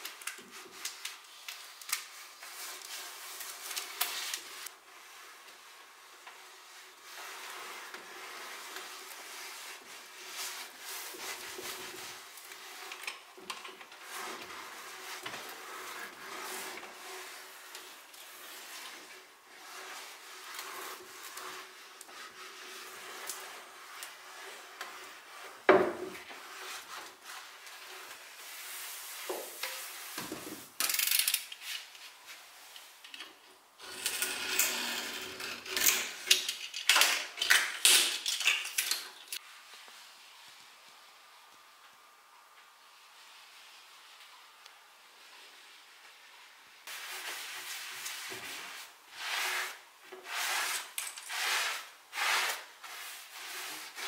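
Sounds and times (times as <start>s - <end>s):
iron rubbing over wood veneer: 14.0s - 30.6s, 46.9s - 54.0s.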